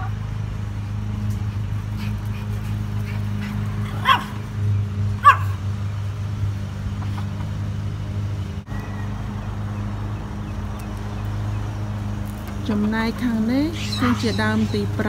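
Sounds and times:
steady low hum: 0:00.0 - 0:15.0
dog barking: 0:03.9 - 0:04.4, 0:05.2 - 0:05.6.

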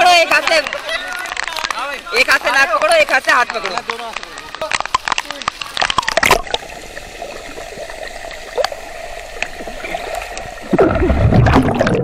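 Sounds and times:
pool water sloshing: 0:04.1 - 0:12.0
deep splash: 0:09.6 - 0:12.0.

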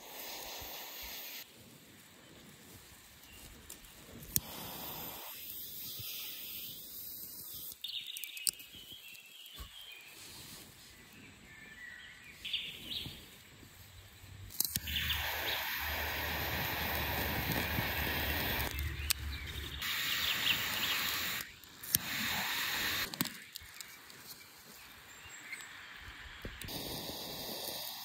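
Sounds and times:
torch lighter clicking and hissing: 0:00.0 - 0:01.5, 0:04.2 - 0:09.2, 0:14.5 - 0:24.2, 0:26.5 - 0:28.0
bird chirps: 0:14.0 - 0:21.6.

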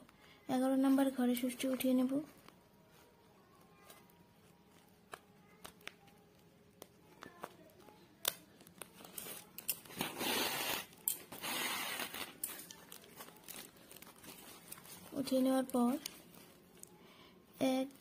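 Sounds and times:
plastic sack rustling: 0:09.0 - 0:16.8.

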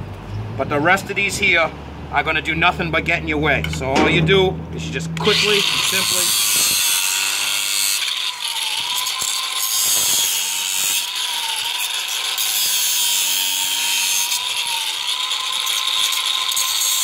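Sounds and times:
angle grinder cutting plastic: 0:05.0 - 0:17.0.

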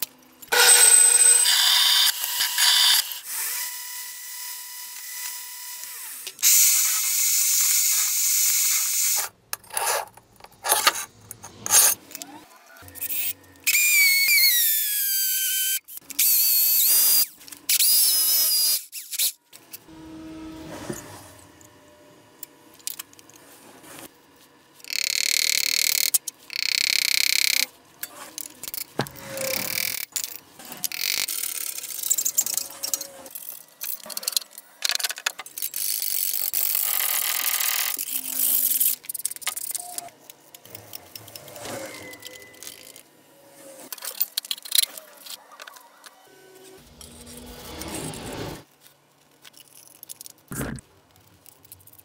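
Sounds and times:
metal parts knocking and scraping: 0:09.5 - 0:13.6, 0:24.9 - 0:43.0, 0:43.9 - 0:45.9, 0:49.2 - 0:52.0.

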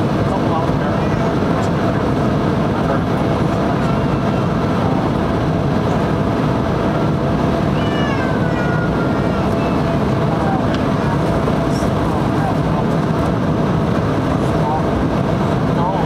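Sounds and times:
jet airliner cabin noise: 0:00.0 - 0:16.0
faint high cry: 0:07.7 - 0:09.8.

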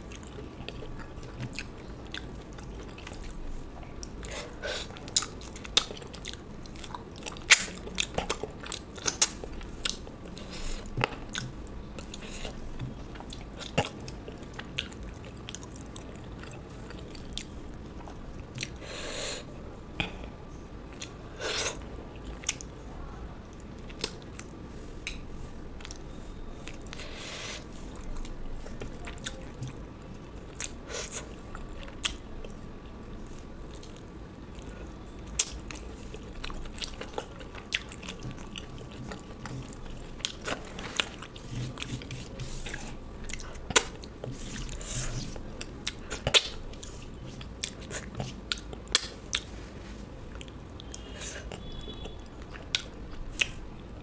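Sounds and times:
person chewing and biting food: 0:33.7 - 0:49.5.

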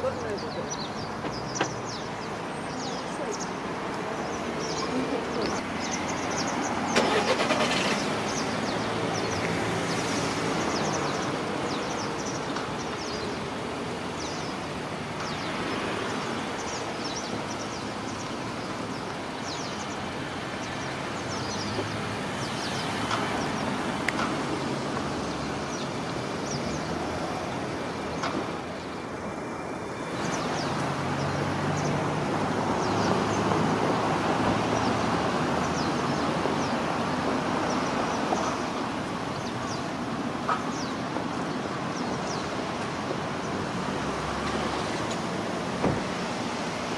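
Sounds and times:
birds high calls: 0:00.0 - 0:29.1
road traffic noise: 0:00.0 - 0:46.9.

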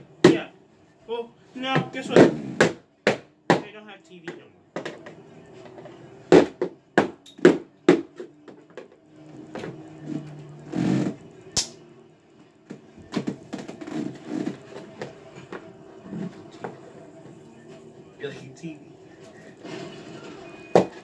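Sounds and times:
hard knocks on tv: 0:01.7 - 0:05.2, 0:06.3 - 0:09.8.

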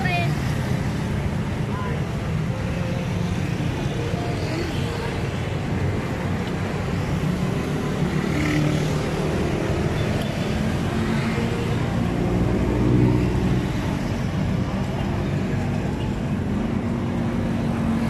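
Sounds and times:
traffic rumble: 0:00.0 - 0:18.0.

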